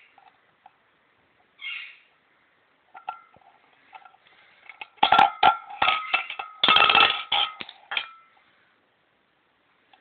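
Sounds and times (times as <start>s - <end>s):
tin can clanking and rattling: 2.9s - 8.4s
ringing tone of thin metal: 5.8s - 8.5s.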